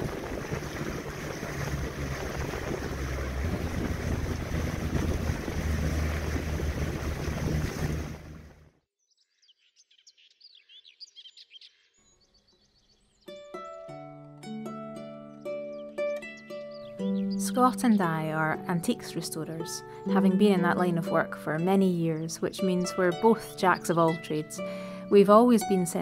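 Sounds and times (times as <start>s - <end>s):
birds chirping: 0.0s - 8.5s, 15.2s - 26.0s
motorboat engine drone: 0.0s - 8.7s
rushing wind and water: 0.0s - 8.7s.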